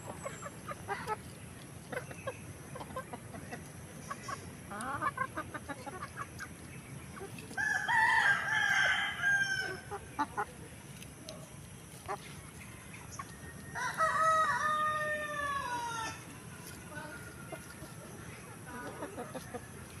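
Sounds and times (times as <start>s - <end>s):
chickens clucking: 0.0s - 20.0s
rooster crowing: 7.6s - 9.9s, 13.7s - 16.2s.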